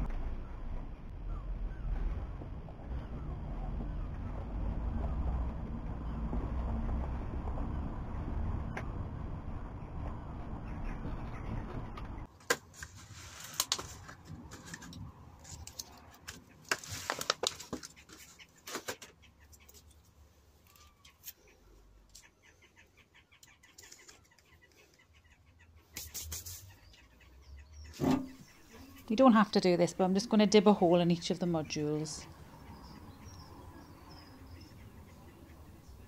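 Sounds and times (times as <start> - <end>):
steady rumble: 0.0 - 12.3.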